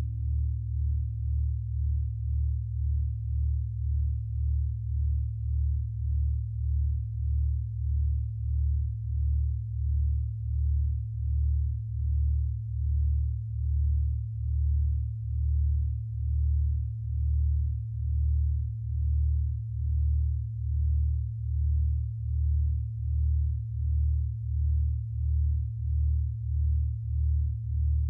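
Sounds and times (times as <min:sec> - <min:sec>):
low sine tones beating: 0:00.0 - 0:28.0.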